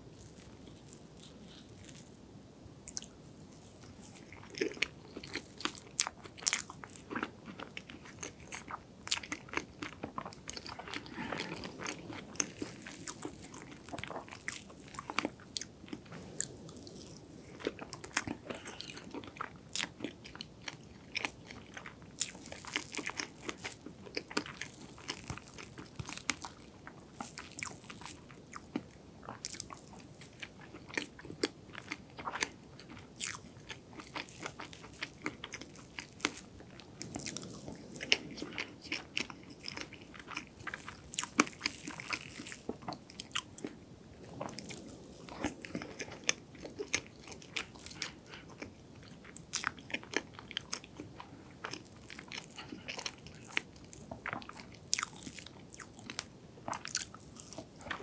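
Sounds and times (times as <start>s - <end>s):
person chewing cake: 0.0s - 2.3s, 2.9s - 58.0s.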